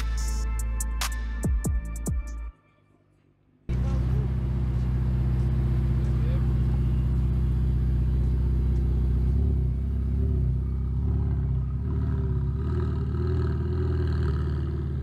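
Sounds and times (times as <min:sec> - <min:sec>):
sports car engine idling: 0:03.7 - 0:12.7.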